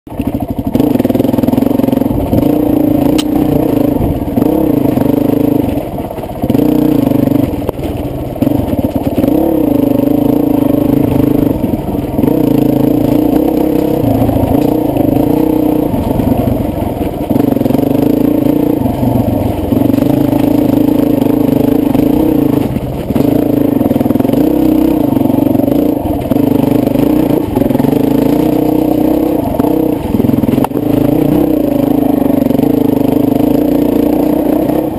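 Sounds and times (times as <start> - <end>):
dirt bike engine revving: 0.1 - 34.9.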